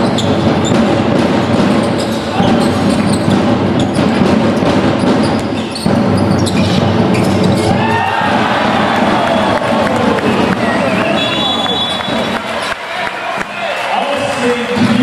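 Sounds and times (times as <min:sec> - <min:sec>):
shoe squeaks: 0:00.0 - 0:00.9, 0:01.6 - 0:07.8, 0:11.0 - 0:12.8
basketball bouncing on gym floor: 0:00.0 - 0:09.2
din in a hall: 0:00.0 - 0:15.0.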